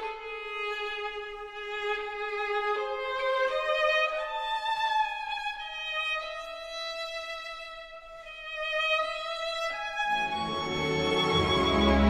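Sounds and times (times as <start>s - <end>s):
solo violin slow melody: 0.0s - 12.0s.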